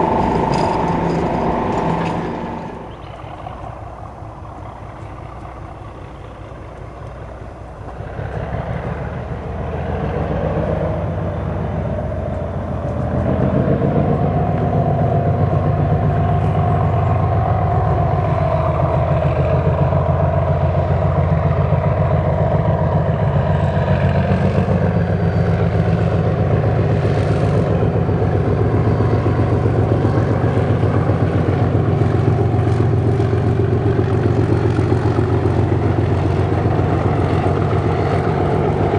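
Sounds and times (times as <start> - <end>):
high whine: 0.0 - 6.8
diesel locomotive engine drone: 0.0 - 38.9.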